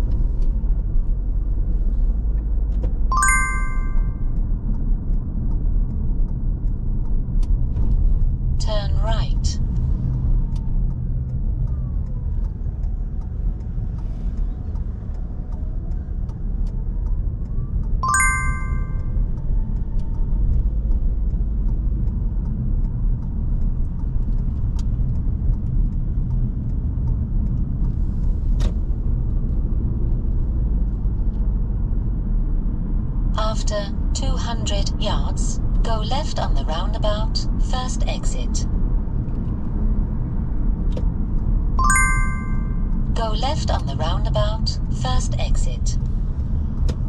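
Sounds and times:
car engine and road rumble: 0.0s - 3.1s, 4.2s - 18.0s, 18.8s - 41.8s, 42.8s - 47.0s
short electronic chime: 3.1s - 4.1s, 18.0s - 19.0s, 41.8s - 42.8s
indicator ticking: 3.1s - 4.4s, 18.0s - 19.1s, 41.8s - 43.8s.

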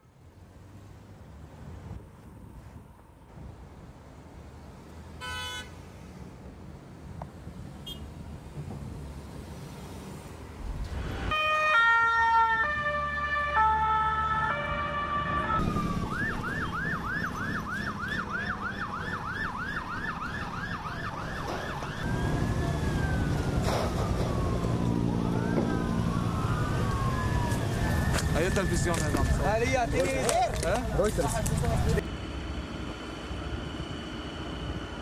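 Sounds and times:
wailing sirens: 10.8s - 32.0s
siren stepping between tones: 11.2s - 29.5s.

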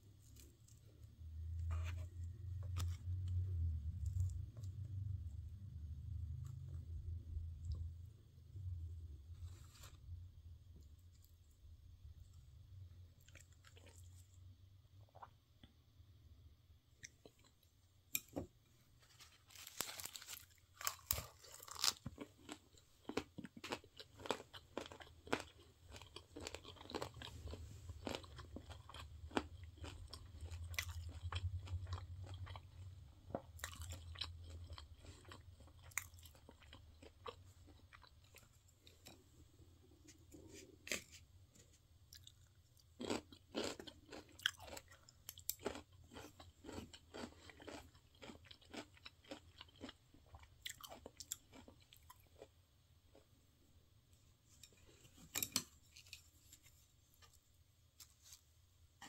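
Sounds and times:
cartilage crunching while chewing: 19.5s - 39.2s, 42.1s - 52.5s.

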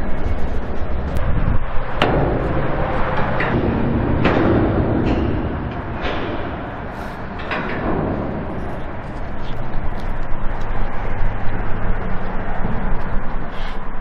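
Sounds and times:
steady rumble: 0.0s - 14.0s
sharp ringing knocks: 1.9s - 10.4s.

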